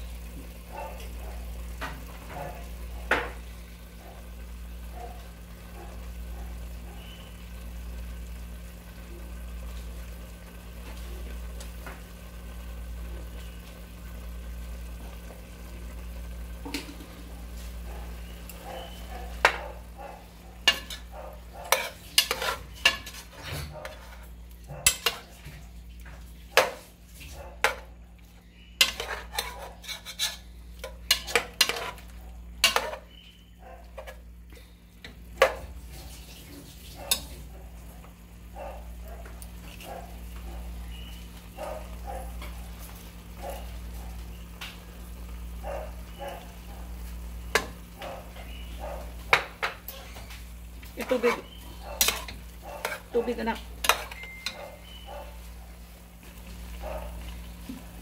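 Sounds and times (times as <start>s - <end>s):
meat frying: 0.0s - 58.0s
metal spoon scraping pot: 20.6s - 24.2s, 28.8s - 33.2s, 51.0s - 55.0s.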